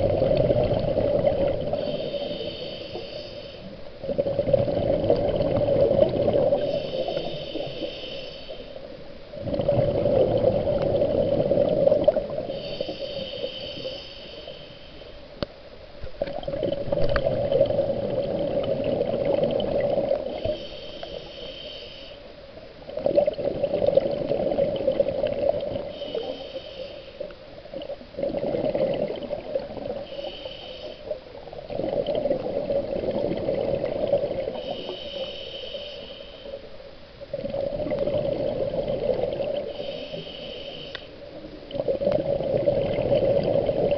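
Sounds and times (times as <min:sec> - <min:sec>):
gurgle of exhaust bubbles: 0:00.0 - 0:01.8, 0:09.4 - 0:12.4, 0:41.8 - 0:43.9
regulator hissing inhale: 0:01.7 - 0:03.8, 0:06.5 - 0:08.9, 0:12.4 - 0:15.3, 0:20.2 - 0:22.3, 0:25.8 - 0:27.4, 0:30.0 - 0:31.4, 0:34.4 - 0:36.8, 0:39.6 - 0:41.3.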